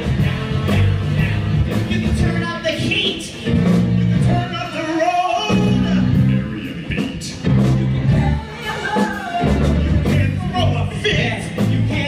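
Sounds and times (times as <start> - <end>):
live band playing upbeat song: 0.0 - 12.0
men singing: 4.2 - 12.0.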